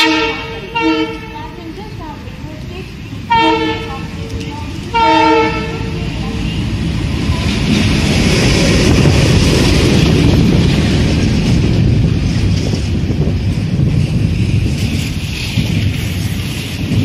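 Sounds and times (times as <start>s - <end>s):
locomotive horn blast: 0.0s - 1.6s, 3.3s - 4.2s, 4.8s - 6.2s
diesel locomotive engine running: 0.0s - 17.0s
train wheels rolling on rails: 0.0s - 17.0s.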